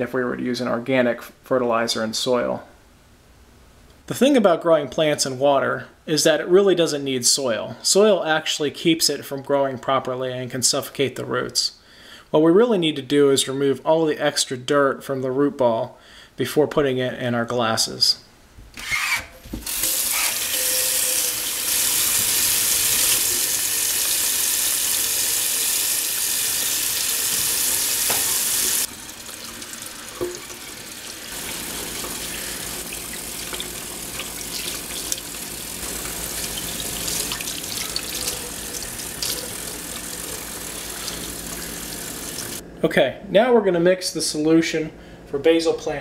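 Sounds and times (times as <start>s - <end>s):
tap running into a steel sink: 28.0s - 28.4s, 30.2s - 30.6s.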